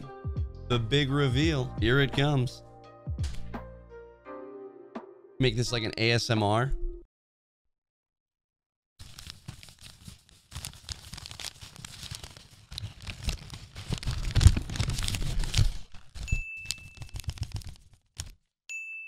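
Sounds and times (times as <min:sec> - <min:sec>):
packing paper crackling: 0:09.0 - 0:18.5.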